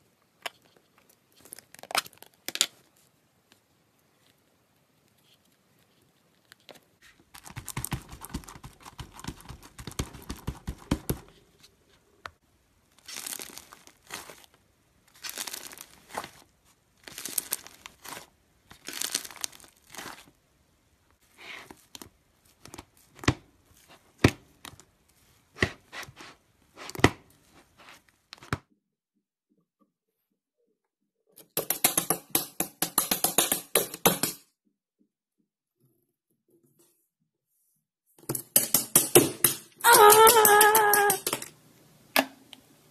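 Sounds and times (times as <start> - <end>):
slime crackling and popping: 13.0 - 14.5, 15.1 - 20.3.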